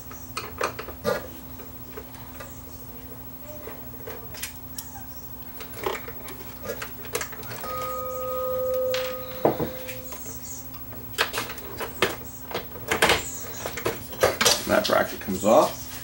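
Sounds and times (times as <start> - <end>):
steady tone: 7.6 - 10.8.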